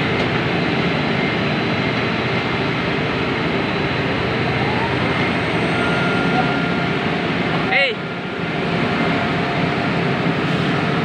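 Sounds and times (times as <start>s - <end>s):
heavy machinery engines droning: 0.0s - 11.0s
faint rising whine: 3.6s - 7.5s.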